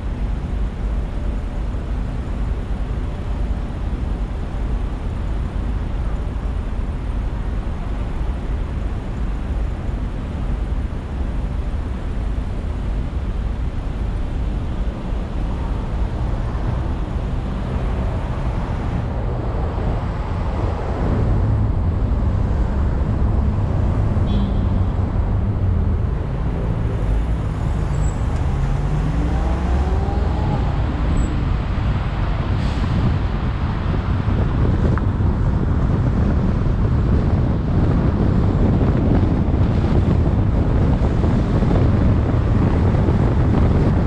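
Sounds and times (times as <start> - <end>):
vehicles pulling away: 14.1 - 44.0.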